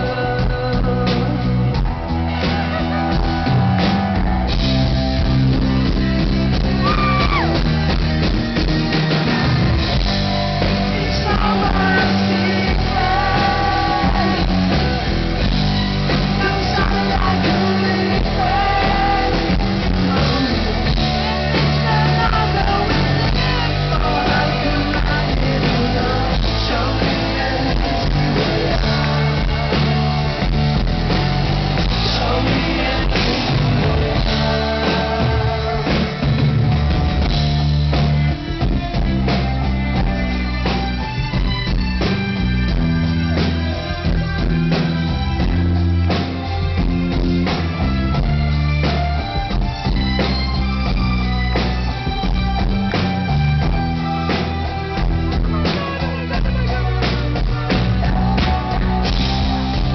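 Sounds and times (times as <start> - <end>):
male singer: 0.0 - 3.0, 10.6 - 15.3, 16.1 - 30.5, 31.8 - 36.4, 55.2 - 59.9
bass: 0.0 - 59.9
drums: 0.0 - 59.9
electric guitars: 0.0 - 59.9.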